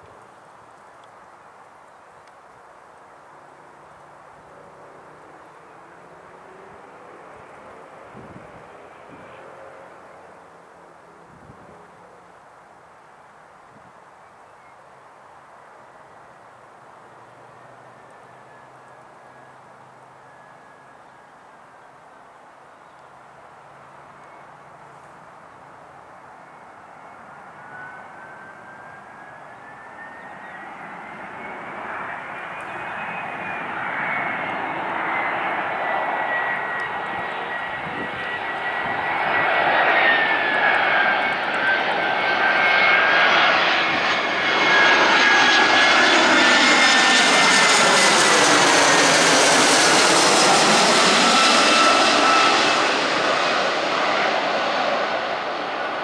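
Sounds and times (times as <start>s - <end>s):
jet engines with fan whine: 3.9s - 12.4s, 16.9s - 22.1s, 23.2s - 56.0s.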